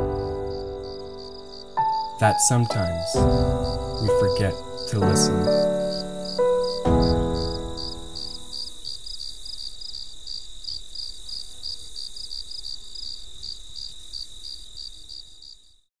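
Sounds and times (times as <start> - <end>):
piano chord ringing: 0.0 - 8.5
crickets chirping: 0.0 - 15.9.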